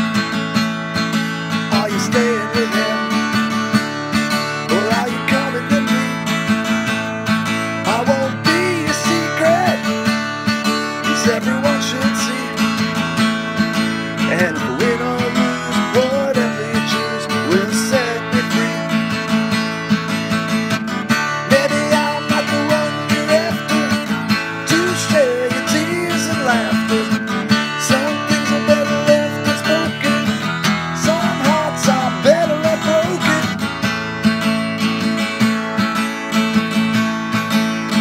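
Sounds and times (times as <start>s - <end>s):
acoustic guitar strumming: 0.0s - 38.0s.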